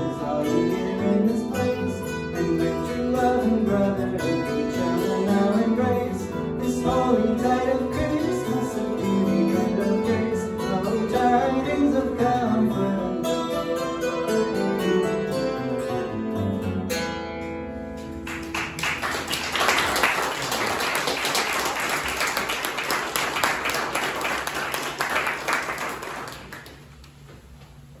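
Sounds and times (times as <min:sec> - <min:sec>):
acoustic guitar: 0:00.0 - 0:27.8
audience applauding: 0:18.1 - 0:27.0.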